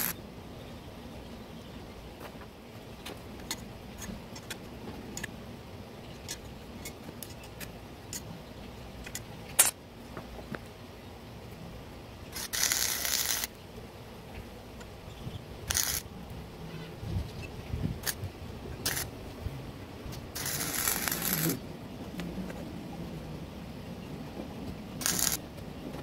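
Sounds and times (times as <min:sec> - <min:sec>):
arc welder crackling hiss: 0:12.3 - 0:13.6, 0:15.6 - 0:16.1, 0:18.8 - 0:19.1, 0:20.3 - 0:21.6, 0:25.0 - 0:25.4.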